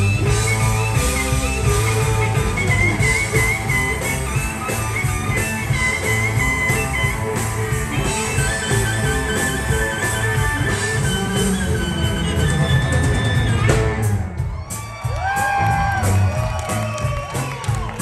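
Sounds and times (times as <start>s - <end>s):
bowed fiddle melody: 0.0s - 13.8s
harmonica: 0.0s - 14.2s
electric guitar: 0.0s - 14.5s
electric bass: 0.0s - 14.6s, 15.2s - 18.0s
drums: 0.0s - 18.0s.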